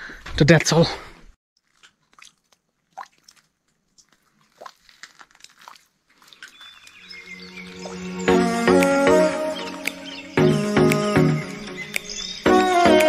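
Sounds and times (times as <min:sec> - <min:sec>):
faint clicks and crunches: 0:01.6 - 0:07.0
soft music: 0:07.2 - 0:13.0.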